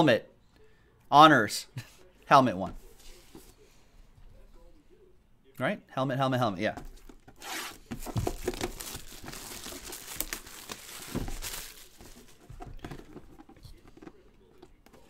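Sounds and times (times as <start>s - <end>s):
dull knocks of box handled: 6.8s - 9.4s
plastic shrink wrap crinkling: 7.4s - 13.2s.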